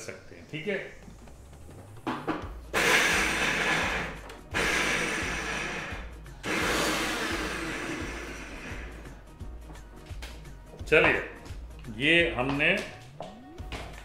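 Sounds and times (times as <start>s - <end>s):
mixer grinder pulsing: 2.7s - 9.1s.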